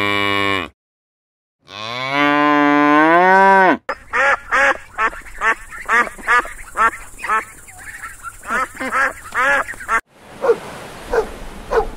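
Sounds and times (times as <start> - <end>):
cow mooing: 0.0 - 0.7, 1.6 - 3.8
ducks quacking: 3.9 - 10.0.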